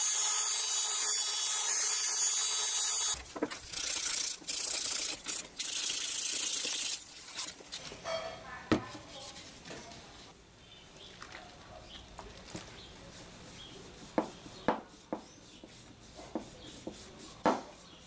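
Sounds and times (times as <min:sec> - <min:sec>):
rotary tool grinding wood: 0:00.0 - 0:07.7
hand sanding wood: 0:12.9 - 0:18.0.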